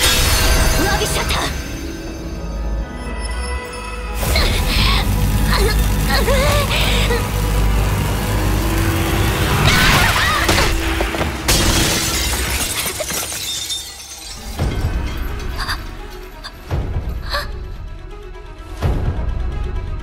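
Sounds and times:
shattering crash: 7.9 - 15.6.

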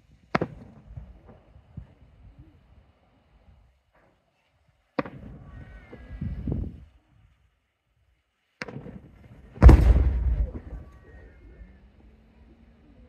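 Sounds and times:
fireworks booming: 4.9 - 6.4, 8.6 - 11.6.

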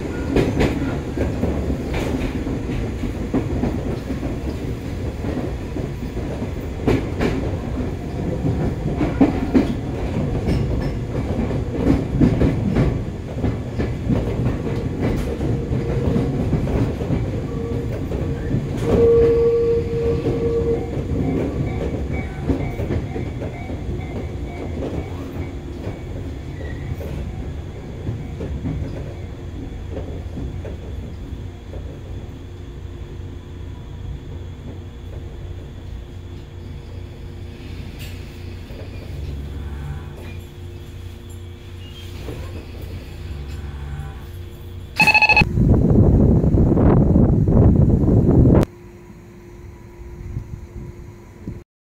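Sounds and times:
train wheels clicking over rail joints: 0.0 - 19.3
train rumble: 0.0 - 51.6
brief steady tone: 45.0 - 45.5.

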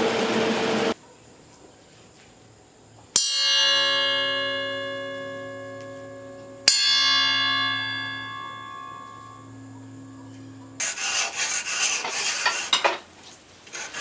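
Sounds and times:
steel bar struck ringing: 3.2 - 11.0.

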